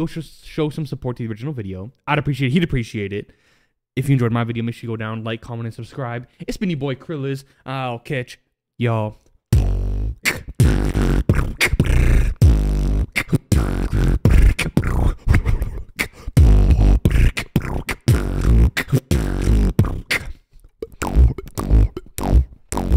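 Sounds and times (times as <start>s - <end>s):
beatboxing into a microphone: 9.5s - 22.9s.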